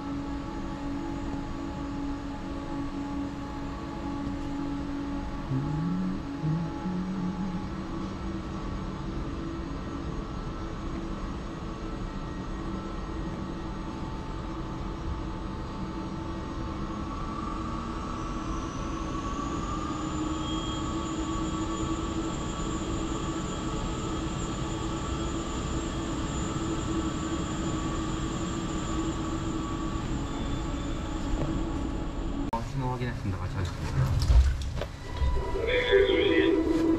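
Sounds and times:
faint high whine: 0:00.0 - 0:36.9
train electrical hum: 0:00.0 - 0:36.9.

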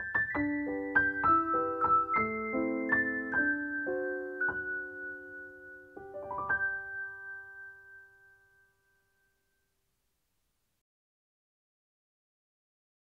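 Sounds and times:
piano music: 0:00.0 - 0:09.2.

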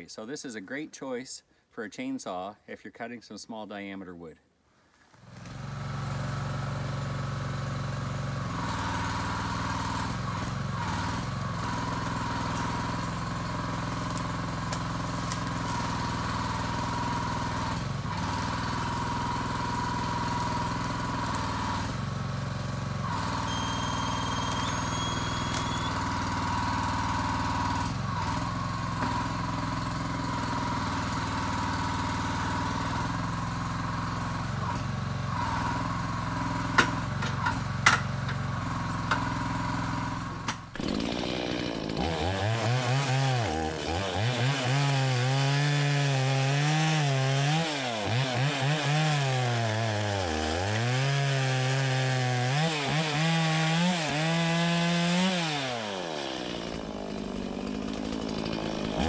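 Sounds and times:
small engine running: 0:05.2 - 0:49.2, 0:50.0 - 0:59.0
hydraulic crane lifting log: 0:05.3 - 0:42.7.

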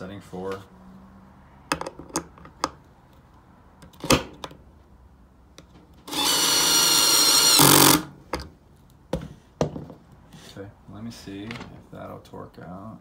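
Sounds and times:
handling clicks and knock: 0:01.7 - 0:02.8
cordless screwdriver driving screw: 0:06.1 - 0:08.0.

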